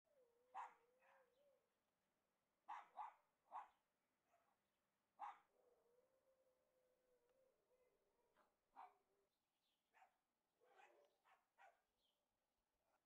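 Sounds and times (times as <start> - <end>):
dog barking: 0.5 - 1.3, 2.7 - 4.6, 5.2 - 5.5, 8.4 - 9.0, 9.9 - 11.9.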